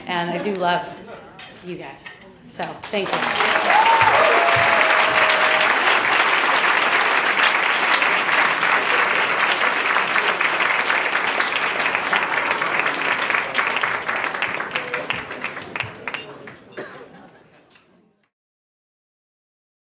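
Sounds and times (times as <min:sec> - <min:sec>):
audience applauding: 0:02.8 - 0:16.8.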